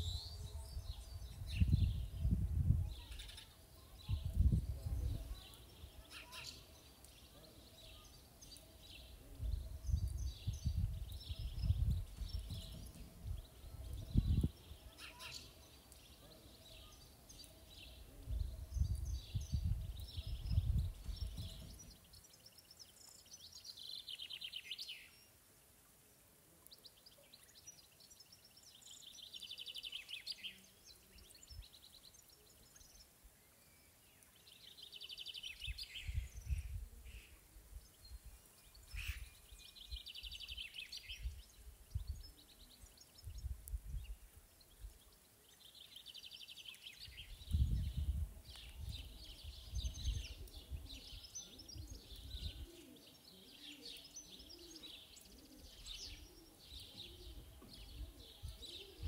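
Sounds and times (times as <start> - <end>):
wind rumble on microphone: 0.0 - 3.2, 4.0 - 5.5, 9.2 - 14.6, 18.1 - 21.9, 35.6 - 39.3, 41.1 - 42.4, 43.2 - 45.0, 47.1 - 52.7.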